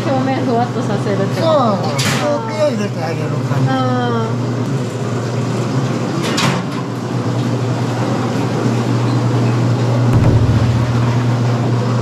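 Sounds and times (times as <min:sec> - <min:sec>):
machinery hum: 0:10.2 - 0:12.0.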